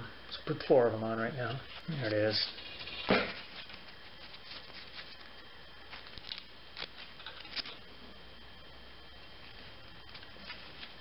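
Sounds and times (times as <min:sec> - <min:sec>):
paper rustling: 0:01.7 - 0:07.8, 0:09.4 - 0:11.0.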